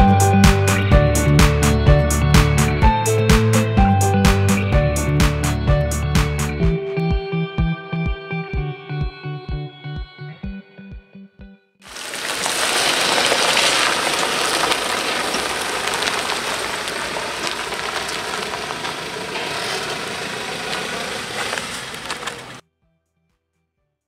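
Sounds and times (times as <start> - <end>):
pickup truck driving on gravel: 11.9 - 22.6.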